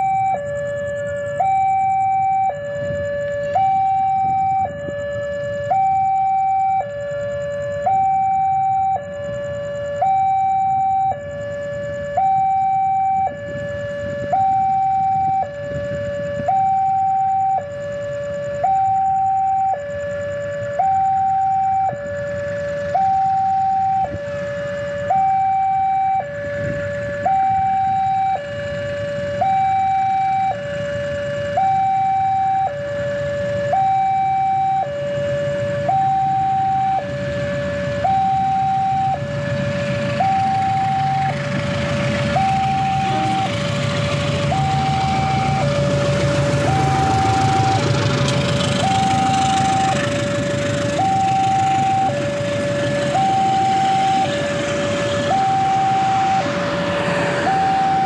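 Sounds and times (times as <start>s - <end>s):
two-tone warning alarm: 0.0s - 58.0s
approaching train rumble: 36.7s - 58.0s.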